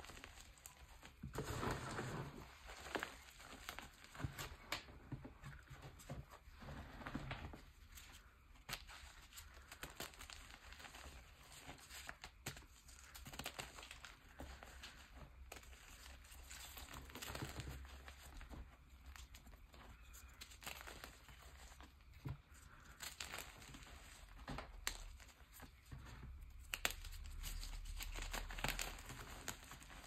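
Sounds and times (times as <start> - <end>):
chalk crumbling crackles: 0.0 - 30.0.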